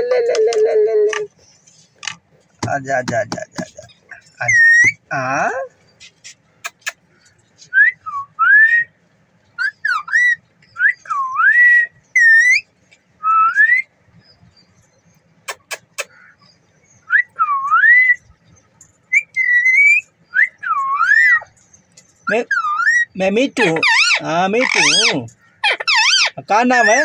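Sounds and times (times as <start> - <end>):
parakeet whistling: 19.1 - 21.4, 22.4 - 26.4.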